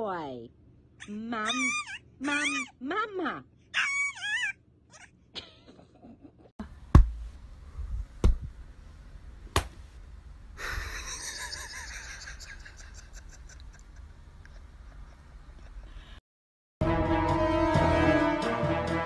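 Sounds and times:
sharp knocks with low thud: 0:06.9 - 0:07.4, 0:08.2 - 0:08.5.

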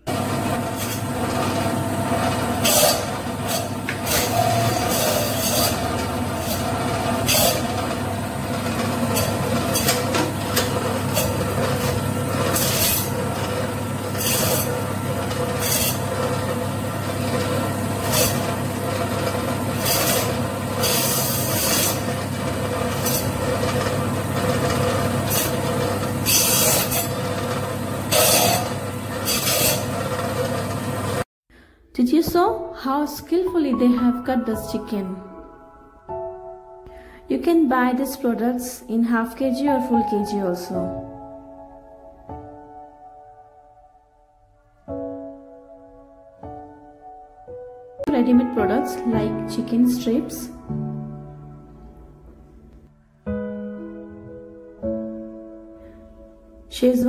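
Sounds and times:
band saw motor hum: 0:00.0 - 0:31.2
saw blade rasping: 0:00.7 - 0:01.4, 0:02.4 - 0:16.5, 0:17.2 - 0:30.7.

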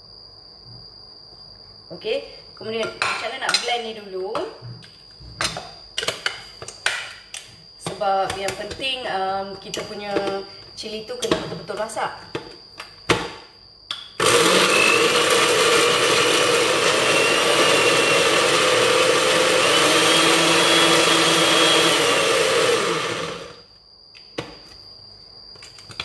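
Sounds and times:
electric blender grinding: 0:14.2 - 0:23.6.

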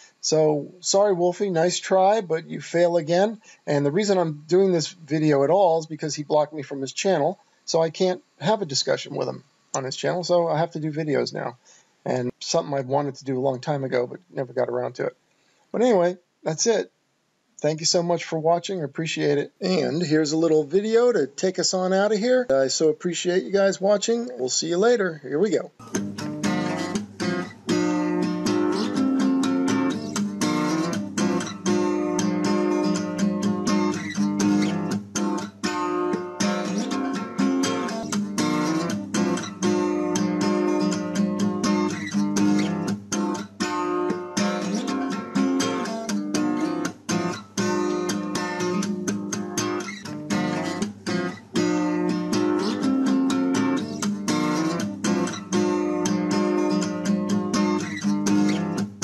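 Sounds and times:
acoustic guitar strummed chords: 0:25.8 - 0:59.0.

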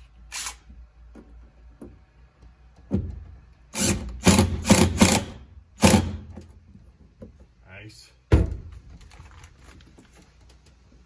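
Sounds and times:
cordless drill bursts: 0:00.3 - 0:00.6, 0:03.7 - 0:06.2.

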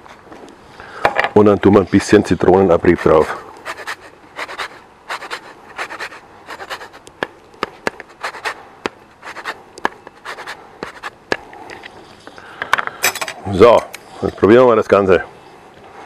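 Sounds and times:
lemon rind scraped on grater: 0:02.9 - 0:07.0, 0:08.0 - 0:08.6, 0:09.2 - 0:11.1.

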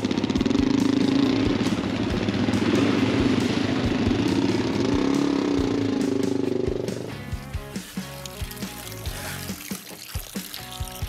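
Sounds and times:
motorcycle engine idling: 0:00.0 - 0:07.8.

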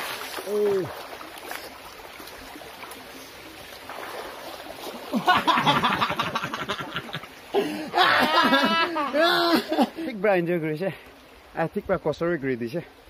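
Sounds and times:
quick choppy water sound: 0:00.0 - 0:07.5
person swimming: 0:00.0 - 0:10.2
stream water running: 0:00.0 - 0:13.0.

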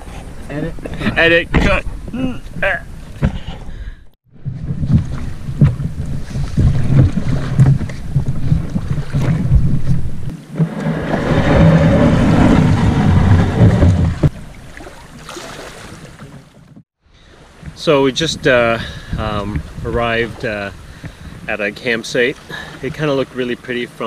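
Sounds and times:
steady low rumble: 0:03.9 - 0:14.6
canoe hull scraping on rock: 0:04.4 - 0:14.5.

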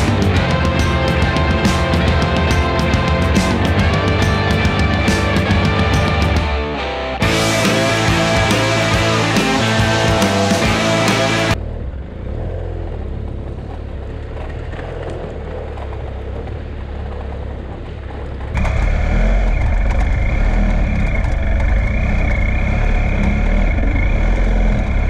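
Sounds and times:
steady high whine: 0:00.0 - 0:11.6
motorcycle engine running: 0:00.0 - 0:25.0.

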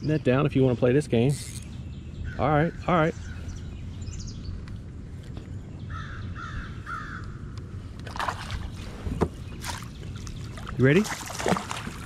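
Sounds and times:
fish splashing at water surface: 0:10.6 - 0:12.0.

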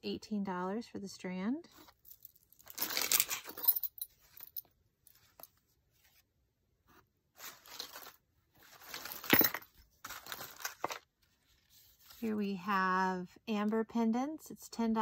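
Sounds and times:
paper and card rustling: 0:07.4 - 0:12.2.

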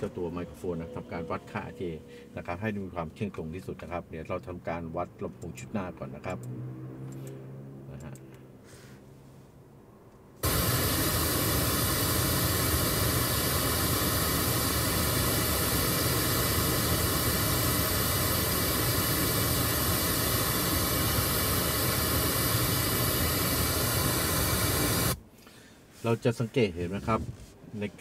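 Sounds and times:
pink noise hiss from speakers: 0:10.4 - 0:25.3.

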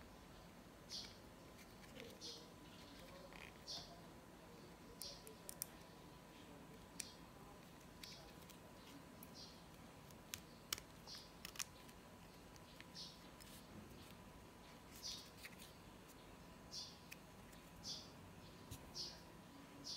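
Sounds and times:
light scratching of band: 0:01.0 - 0:04.0.

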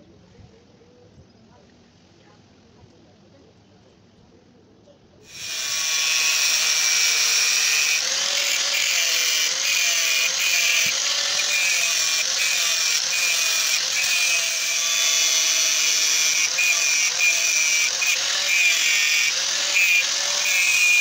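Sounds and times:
angle grinder cutting steel: 0:05.3 - 0:21.0.

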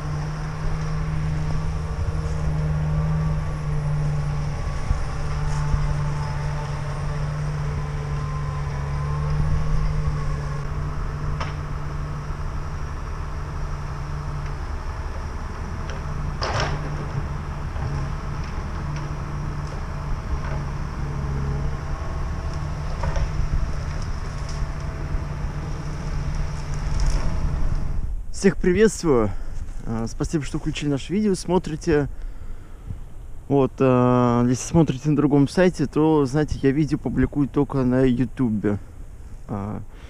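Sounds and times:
thin wavering whine: 0:00.0 - 0:28.4
diesel engine humming: 0:00.0 - 0:40.0.

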